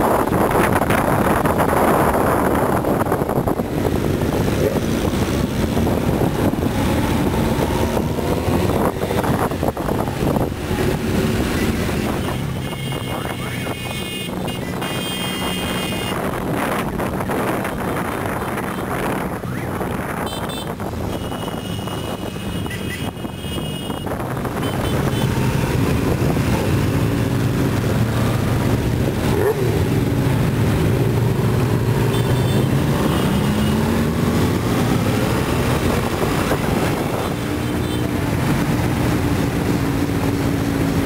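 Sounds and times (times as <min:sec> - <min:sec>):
motorcycle engines running: 0:00.0 - 0:41.0
wind on microphone: 0:00.0 - 0:41.0.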